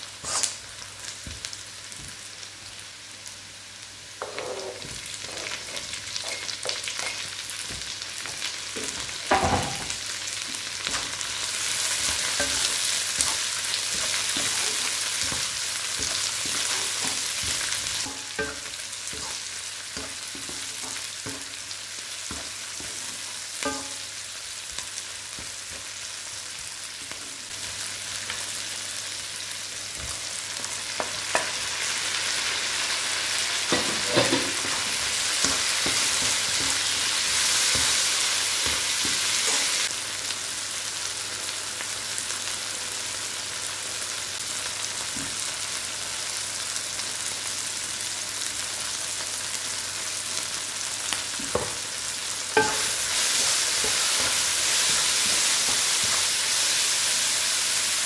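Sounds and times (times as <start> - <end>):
food sizzling in hot oil: 0.0 - 58.0
spatula scraping a pan: 10.9 - 21.6.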